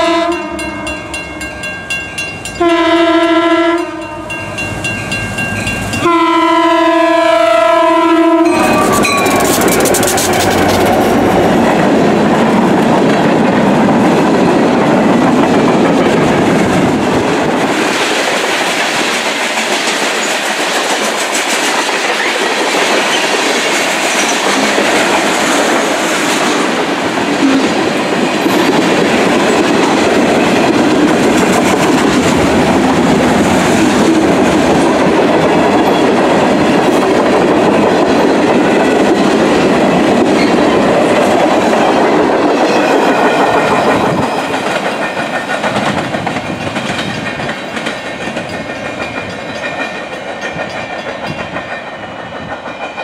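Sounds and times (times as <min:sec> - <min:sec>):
freight train rumbling past: 0:00.0 - 0:53.0
wheels clicking over rail joints: 0:08.5 - 0:14.2.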